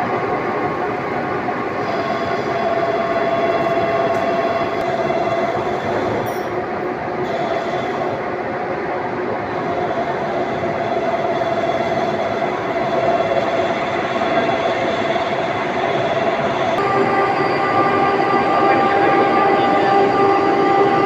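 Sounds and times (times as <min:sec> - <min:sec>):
workshop machinery din: 0:09.5 - 0:21.0.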